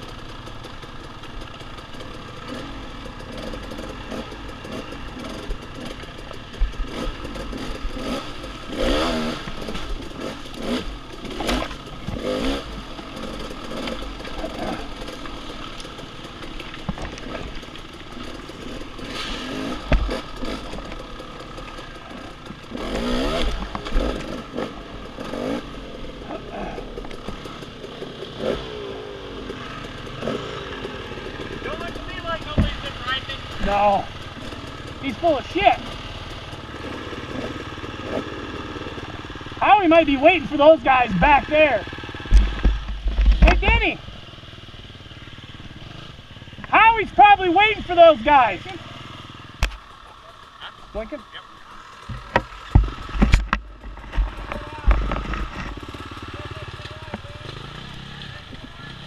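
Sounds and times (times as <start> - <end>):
knocks and clatter from bike: 0.0 - 25.6, 26.6 - 28.7, 29.4 - 34.9, 42.1 - 43.8, 51.9 - 58.9
dirt bike engine revving: 0.0 - 59.0.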